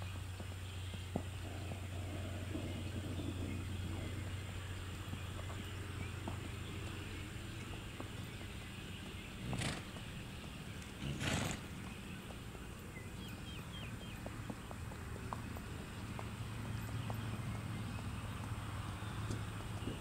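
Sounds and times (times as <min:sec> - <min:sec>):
faint hoofbeats on dirt: 0:00.0 - 0:20.0
horse snorting: 0:01.4 - 0:04.4, 0:09.3 - 0:10.3, 0:10.9 - 0:12.0.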